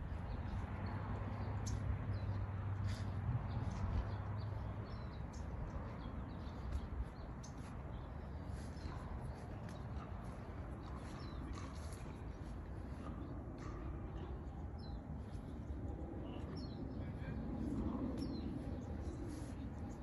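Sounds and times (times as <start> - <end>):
low hum: 0.0 - 20.0
small birds chirping: 0.0 - 20.0.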